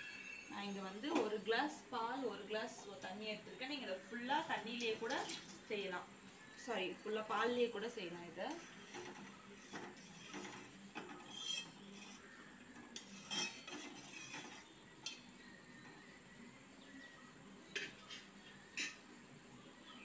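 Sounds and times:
spoon scraping pot bottom: 8.4s - 15.3s, 17.8s - 19.0s
spoon clinking against pot: 17.8s - 19.0s.

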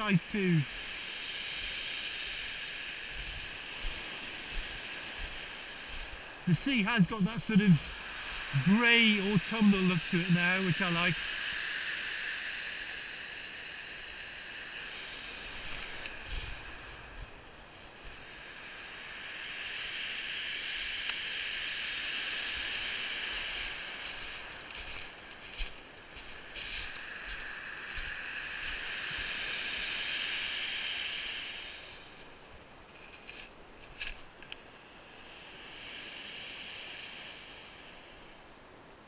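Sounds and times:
footsteps on pebbles: 3.1s - 6.3s, 17.5s - 18.3s, 23.3s - 29.4s.

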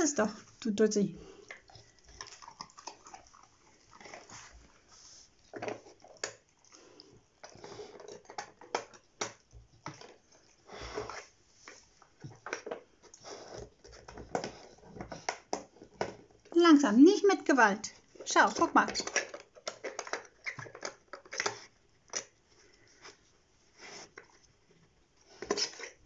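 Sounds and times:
dog chewing treats: 1.2s - 4.8s, 18.5s - 22.3s
dog sniffing: 1.2s - 5.5s, 22.6s - 24.4s.

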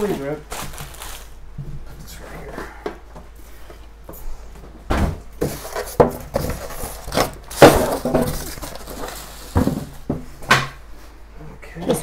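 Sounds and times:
cardboard boxes knocking and scraping: 4.9s - 10.3s.

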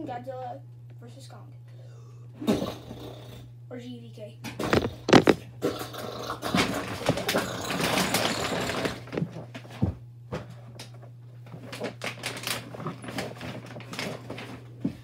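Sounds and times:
rustling at a desk: 4.6s - 5.4s
small knocks and clicks: 4.6s - 5.4s
steady low hum: 4.6s - 11.4s.

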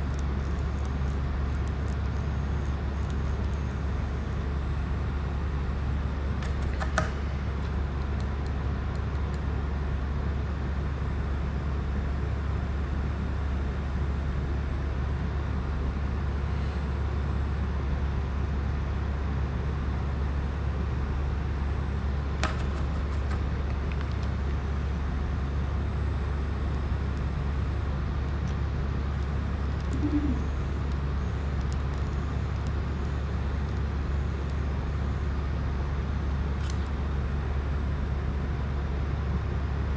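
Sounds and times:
low background hum: 0.0s - 39.9s
brief low tone: 29.9s - 30.7s.

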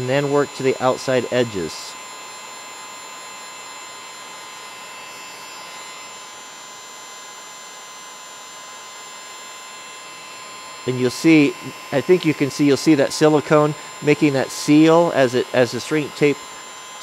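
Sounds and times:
heat gun blowing air: 7.9s - 17.0s.

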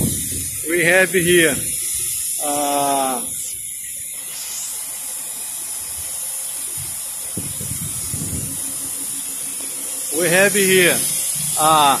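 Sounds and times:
steady plant background hiss: 0.0s - 12.0s
man saying a short word: 11.6s - 12.0s.

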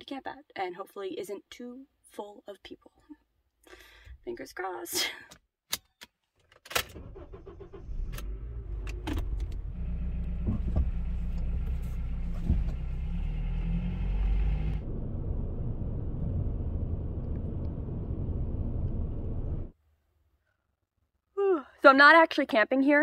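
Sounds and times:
engine and road rumble: 6.9s - 19.8s.

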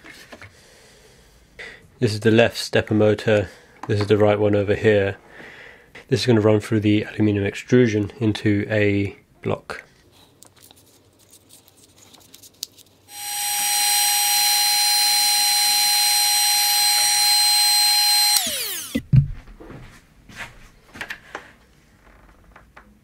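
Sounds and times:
heat gun fan whining: 13.1s - 19.0s.

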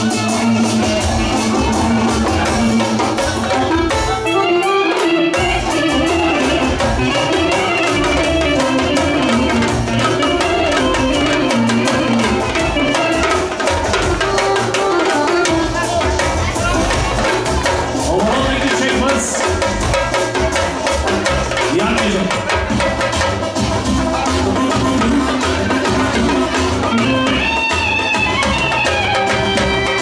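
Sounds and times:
woodwind melody: 0.0s - 17.7s, 23.8s - 30.0s
fast drumming on hand drums: 0.0s - 30.0s.

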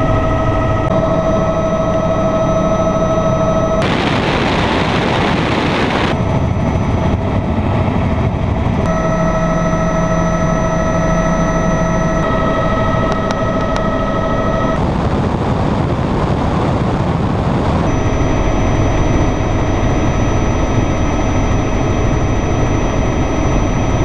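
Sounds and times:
helicopter engine and rotor: 0.0s - 24.0s
wind noise on microphone: 3.8s - 9.1s, 12.1s - 24.0s.

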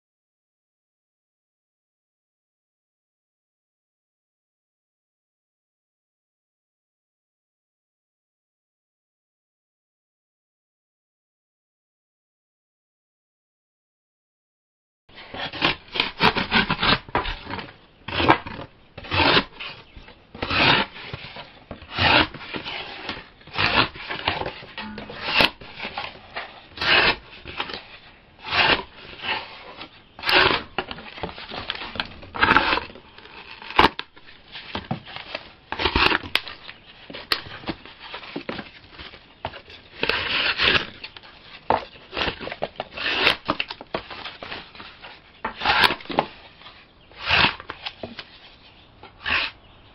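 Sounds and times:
blade rasping scrape: 15.2s - 38.4s, 39.5s - 41.2s, 42.1s - 44.6s, 45.4s - 46.3s, 47.1s - 48.0s, 49.2s - 49.7s.

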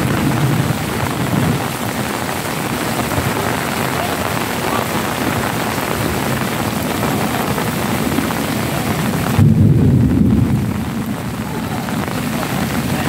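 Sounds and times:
heavy rain hissing: 0.0s - 13.0s
loud low rumble: 9.0s - 13.0s.

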